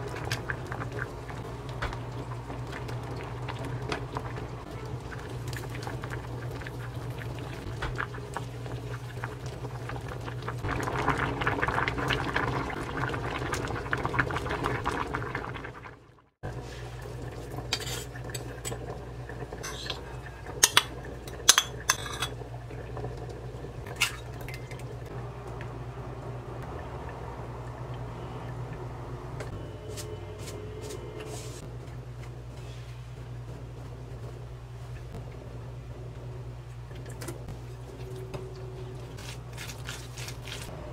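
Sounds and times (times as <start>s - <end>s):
spoon stirring in metal saucepan: 17.7s - 18.8s, 19.6s - 22.4s
spoon clinking on ceramic bowls: 19.6s - 20.0s, 20.6s - 22.4s
low hum: 21.6s - 39.8s.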